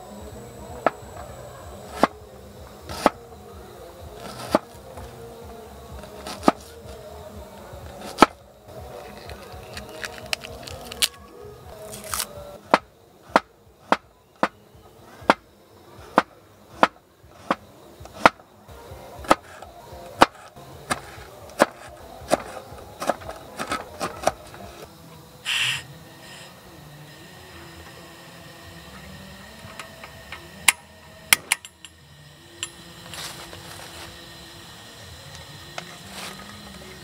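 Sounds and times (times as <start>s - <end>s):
short hiss: 25.4s - 26.6s.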